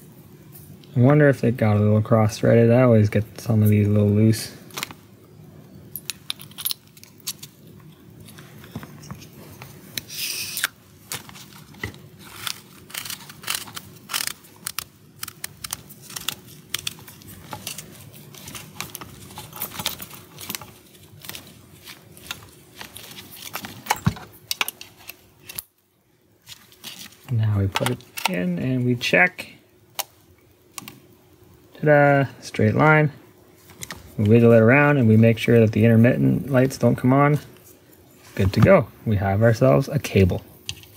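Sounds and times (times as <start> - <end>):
connector clicks and scrapes: 9.1 - 25.7.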